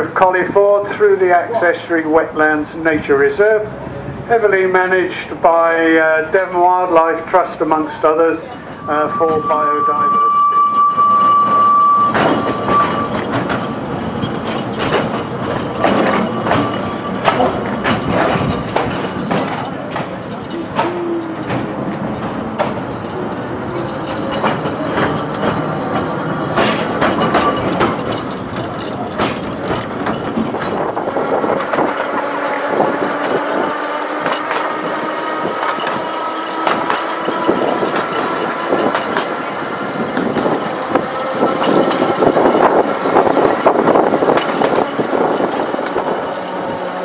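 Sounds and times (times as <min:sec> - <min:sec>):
tram running rumble: 0:00.0 - 0:47.0
wheels clicking over rails: 0:12.0 - 0:47.0.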